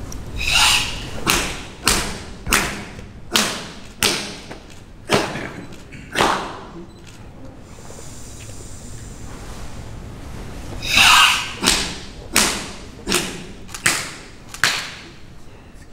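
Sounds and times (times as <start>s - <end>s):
open-hand slaps on bare body: 11.6s - 15.0s.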